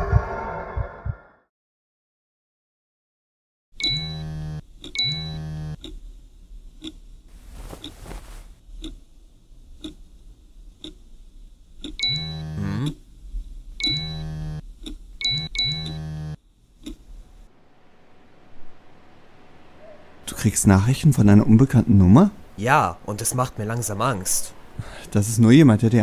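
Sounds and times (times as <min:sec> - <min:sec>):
phone buzzing bursts: 0:03.8 - 0:05.8, 0:12.0 - 0:12.8, 0:13.8 - 0:14.6, 0:15.2 - 0:16.4
clock ticking: 0:03.8 - 0:06.0, 0:06.8 - 0:07.0, 0:08.8 - 0:09.1, 0:09.8 - 0:10.0, 0:10.8 - 0:11.0, 0:11.8 - 0:13.0.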